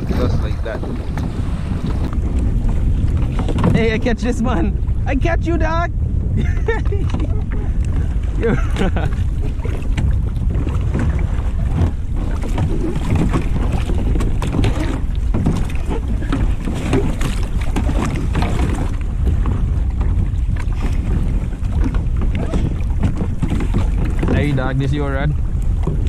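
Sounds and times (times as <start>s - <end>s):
water slapping against kayak hulls: 0.0s - 26.0s
wind buffeting microphone: 0.0s - 26.0s
small knocks and splashes: 9.4s - 24.9s.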